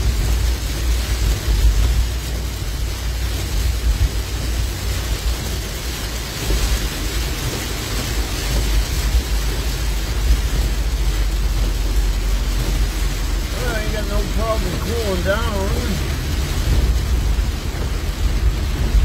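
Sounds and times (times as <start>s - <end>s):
deep rumble of car driving: 0.0s - 19.0s
heavy rain on car windshield: 0.0s - 19.0s.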